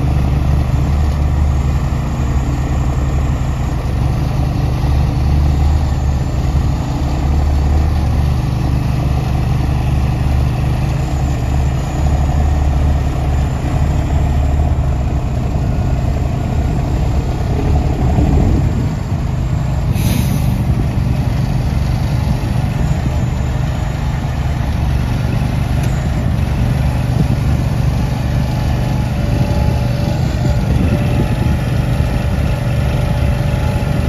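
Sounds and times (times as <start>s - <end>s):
engine running at low speed: 0.0s - 34.0s
brief hiss: 19.9s - 20.6s.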